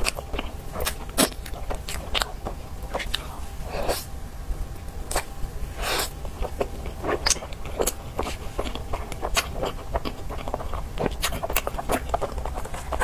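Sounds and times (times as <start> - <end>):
wet chewing clicks and smacks: 0.0 - 3.3, 6.0 - 13.0
biting into soft bun: 5.1 - 13.0.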